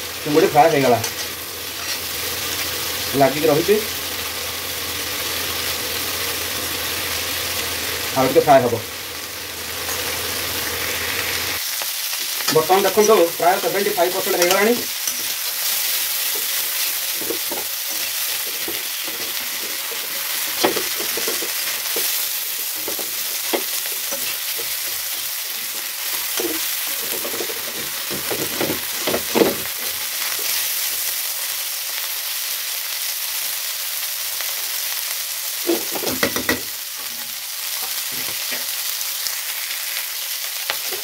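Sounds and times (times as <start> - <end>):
prawns sizzling in oil: 0.0 - 41.0
utensil scraping and knocking pan: 16.3 - 25.0, 25.7 - 29.7.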